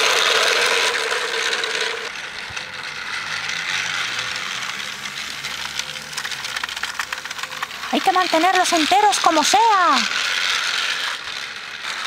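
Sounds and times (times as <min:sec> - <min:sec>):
toy train motor whirring: 0:00.0 - 0:12.0.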